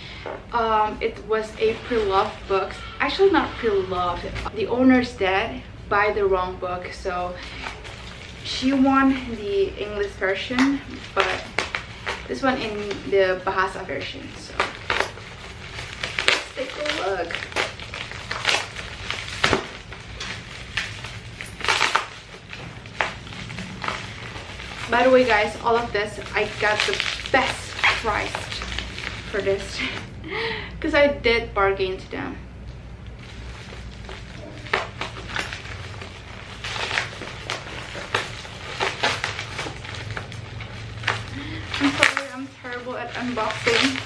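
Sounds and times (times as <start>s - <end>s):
plastic crinkling: 0.1s - 4.5s, 6.8s - 30.1s, 32.6s - 44.0s
paper wrapping tearing: 7.4s - 30.0s, 33.1s - 44.0s.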